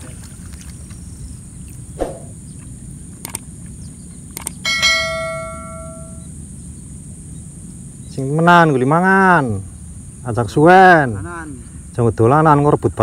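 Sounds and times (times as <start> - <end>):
sharp clicks: 3.2 - 3.5, 4.3 - 4.6
bright bell ding: 4.7 - 6.2.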